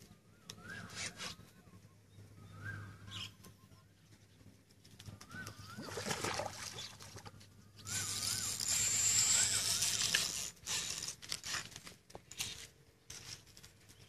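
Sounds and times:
splash at water surface: 5.8s - 7.3s
fishing reel whirring: 7.7s - 13.4s.

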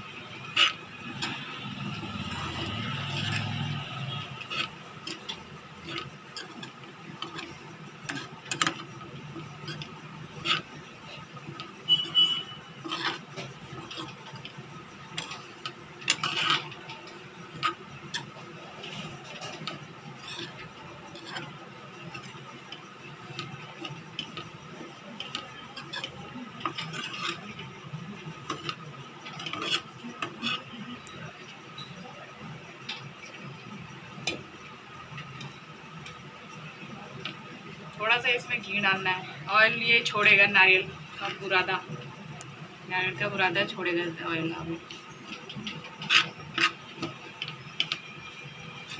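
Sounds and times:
metal spoon scraping a pan: 0.0s - 32.0s, 44.1s - 48.9s.

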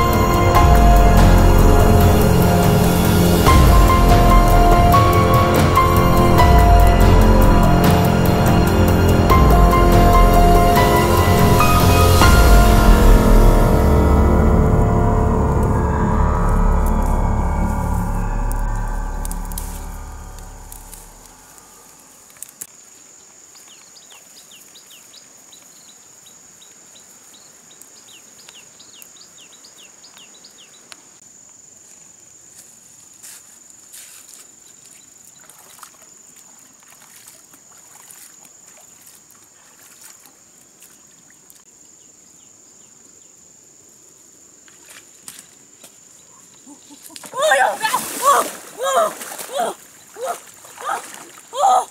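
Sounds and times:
background music: 0.0s - 21.4s
high insect drone: 0.0s - 51.9s.

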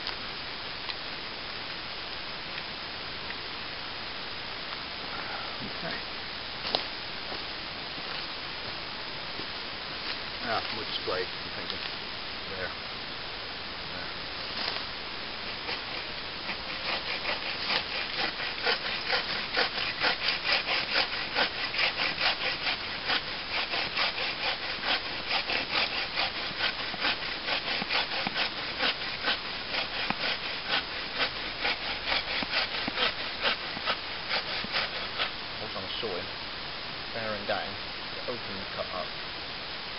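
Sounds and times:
saw rasping through log: 15.4s - 35.4s.

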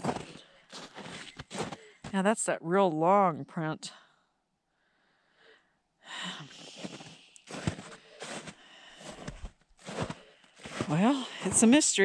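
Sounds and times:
boot footsteps on melting snow: 0.0s - 1.8s, 6.7s - 12.0s.

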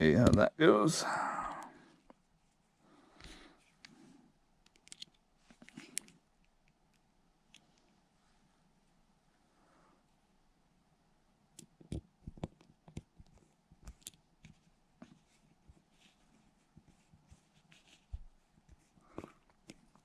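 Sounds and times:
small screwdriver clicks and taps: 4.6s - 6.2s.

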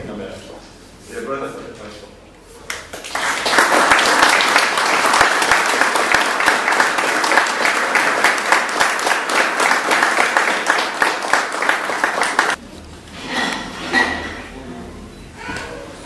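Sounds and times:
crowd applauding: 2.8s - 12.6s.

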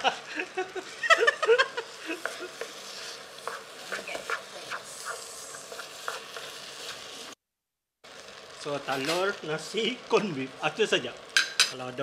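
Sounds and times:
rice sizzling: 0.0s - 7.4s, 8.0s - 12.0s
spatula scraping frying pan: 1.8s - 7.4s.

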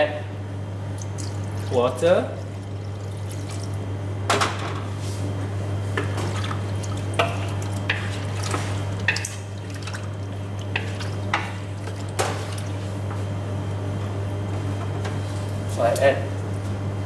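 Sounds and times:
steady low hum: 0.0s - 17.0s
liquid sloshing: 1.0s - 3.9s, 6.2s - 13.0s.

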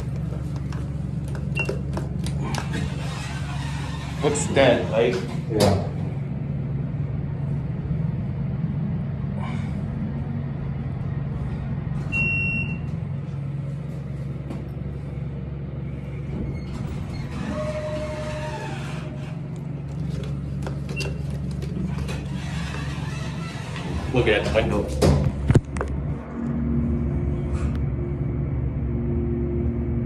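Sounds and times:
elevator hum: 0.0s - 30.0s.

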